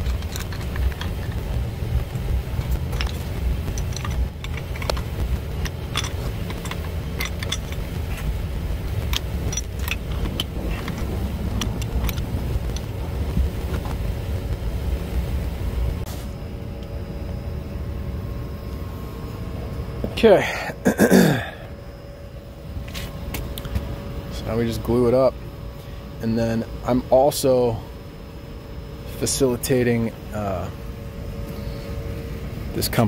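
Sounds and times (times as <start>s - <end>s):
low machinery rumble: 0.0s - 33.0s
metal tools clinking on valve: 2.6s - 8.3s, 9.0s - 12.9s.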